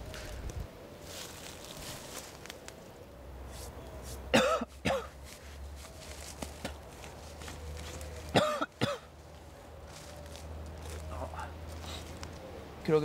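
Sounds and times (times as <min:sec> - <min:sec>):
man coughing and retching: 0:04.3 - 0:05.2, 0:08.3 - 0:09.1.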